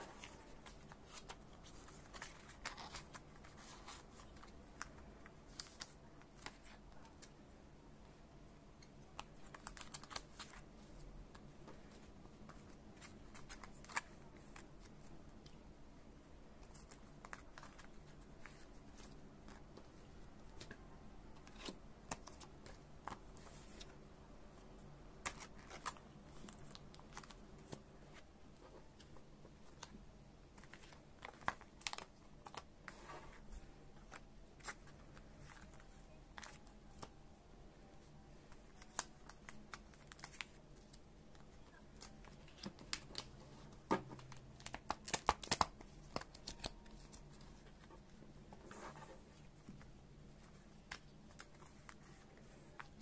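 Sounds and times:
plastic sleeves clicking and crinkling: 0:08.8 - 0:10.6, 0:25.2 - 0:33.4, 0:38.5 - 0:48.1.

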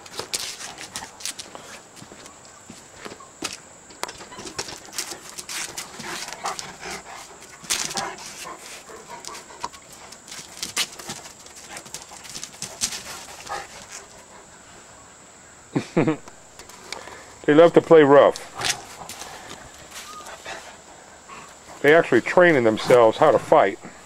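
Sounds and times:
dog claws clicking on concrete: 0:00.0 - 0:01.5.

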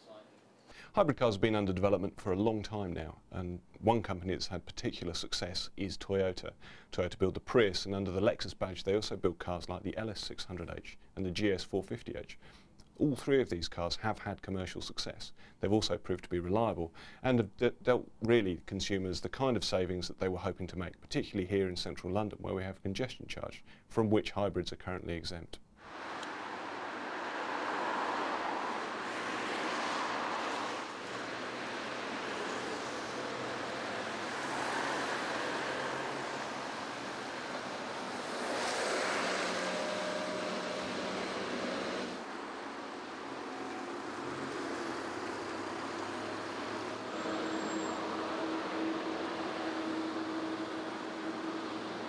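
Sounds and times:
cars passing by: 0:25.8 - 0:52.0.

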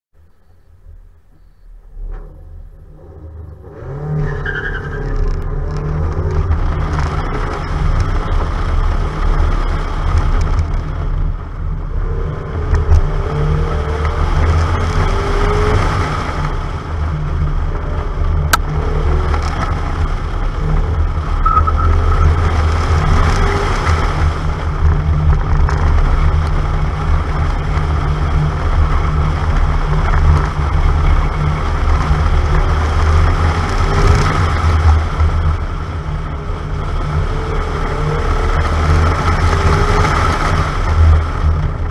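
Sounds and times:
car engine and road noise: 0:00.1 - 0:41.9
heavy low rumble: 0:00.1 - 0:41.9
tyre squeals: 0:03.8 - 0:05.6, 0:21.3 - 0:22.6.

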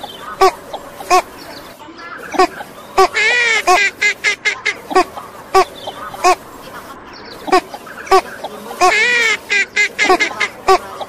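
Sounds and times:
duck quacking: 0:00.0 - 0:01.5, 0:02.1 - 0:11.0.

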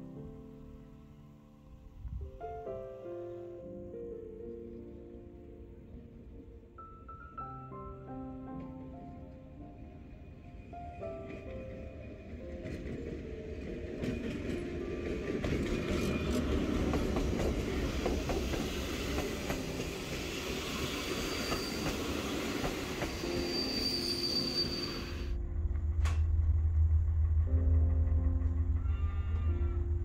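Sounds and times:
train rumbling on rails: 0:08.5 - 0:30.0
high wheel squeal: 0:20.1 - 0:25.4.

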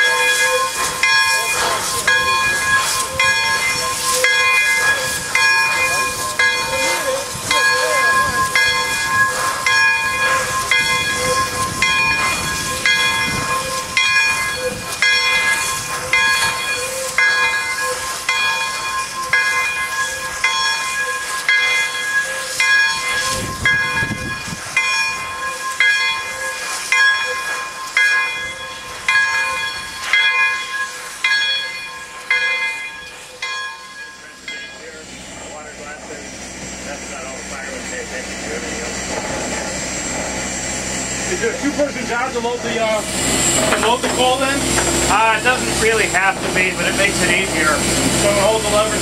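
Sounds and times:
low rush of steam: 0:00.0 - 0:49.0
steam locomotive bell ringing: 0:00.0 - 0:49.0
hiss of escaping steam: 0:00.1 - 0:24.8.

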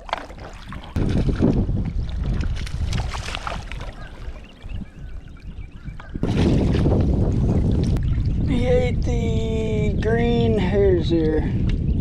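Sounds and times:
water sloshing and splashing: 0:00.0 - 0:05.0, 0:06.0 - 0:08.5
wind buffeting microphone: 0:00.0 - 0:12.0.

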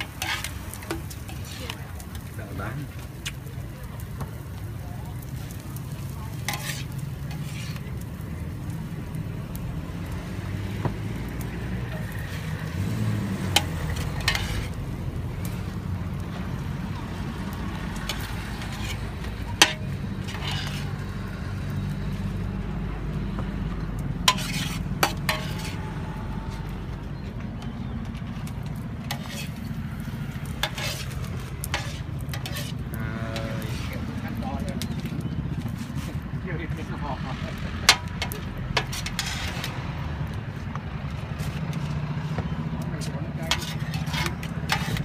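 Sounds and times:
metal spatulas clanking on pan: 0:00.0 - 0:01.8, 0:06.4 - 0:07.8, 0:13.4 - 0:14.8, 0:18.0 - 0:21.0, 0:24.2 - 0:25.8, 0:28.4 - 0:29.8, 0:30.5 - 0:34.0, 0:37.8 - 0:39.8, 0:43.3 - 0:45.0
noodles sizzling in a steel pan: 0:00.0 - 0:23.2, 0:24.0 - 0:27.2, 0:27.9 - 0:41.8, 0:43.3 - 0:45.0.

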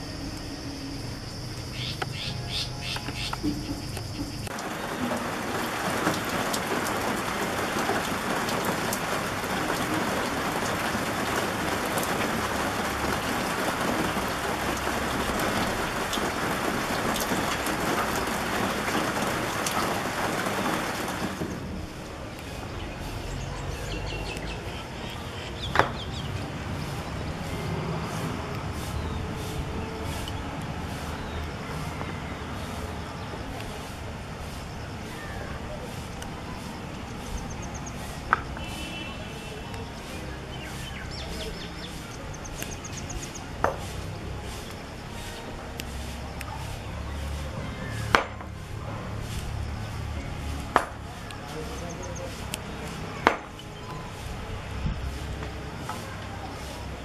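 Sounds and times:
rain hissing: 0:00.0 - 0:57.0
raindrop ticks: 0:01.5 - 0:22.5, 0:40.6 - 0:44.8.

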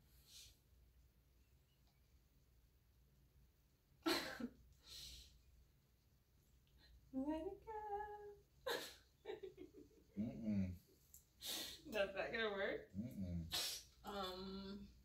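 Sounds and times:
woman singing: 0:07.2 - 0:08.4.

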